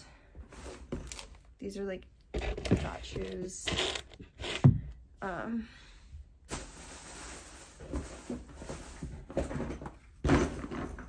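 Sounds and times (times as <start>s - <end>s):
rustling of plastic bag: 6.5s - 9.2s.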